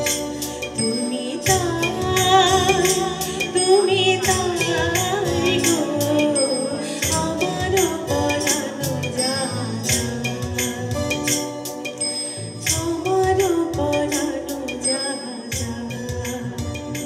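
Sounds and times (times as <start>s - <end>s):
woman singing with vibrato: 0.0s - 11.3s, 12.4s - 17.0s
live band with tabla and keyboards: 0.0s - 17.0s.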